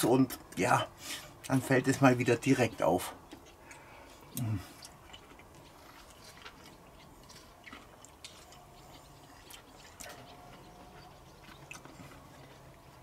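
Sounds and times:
man chewing food: 0:00.1 - 0:13.0.

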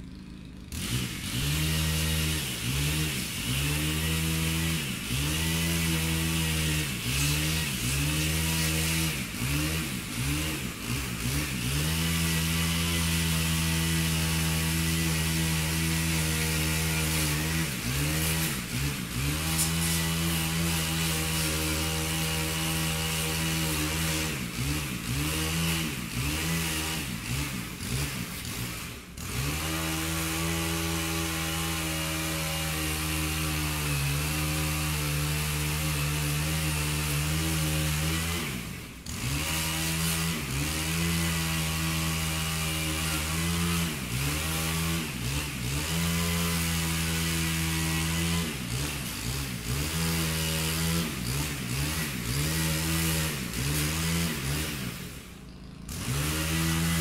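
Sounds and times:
chainsaw running: 0:00.0 - 0:57.0.

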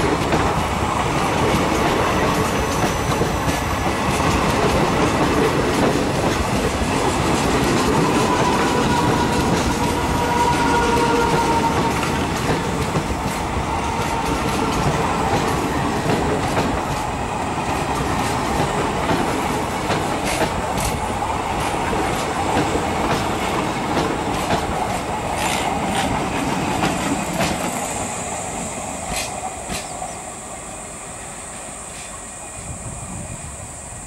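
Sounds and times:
train wheels rumbling: 0:00.0 - 0:34.0
wheels clacking over rail joints: 0:01.3 - 0:27.9.

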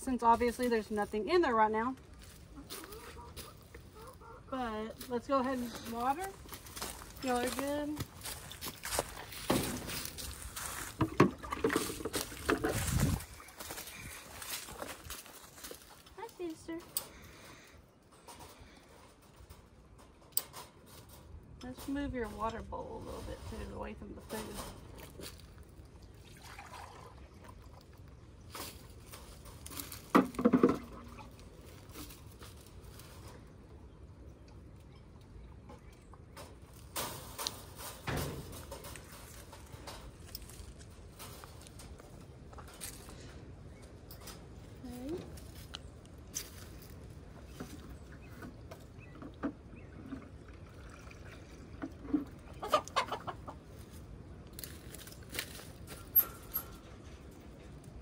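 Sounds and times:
bucket and scoop knocking: 0:10.8 - 0:13.2
water scooped and poured: 0:26.0 - 0:28.0.

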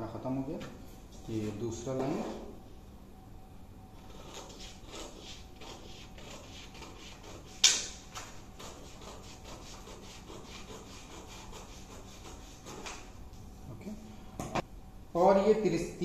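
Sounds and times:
loud sharp snap: 0:07.6 - 0:08.0.

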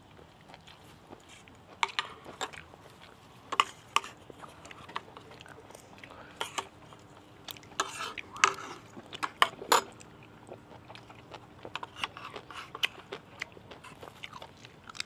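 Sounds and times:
cutlery scraping a plate: 0:03.5 - 0:05.0, 0:07.8 - 0:10.0.

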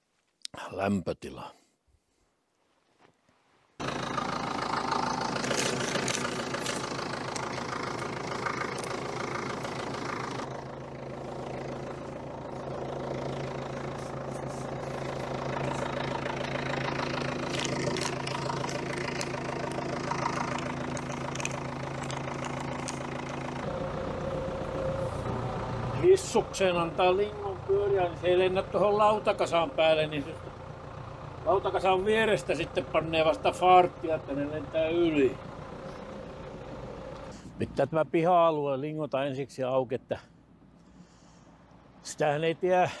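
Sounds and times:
snowblower throwing snow: 0:03.8 - 0:23.7
tractor diesel engine running: 0:03.8 - 0:38.3, 0:40.3 - 0:43.0.

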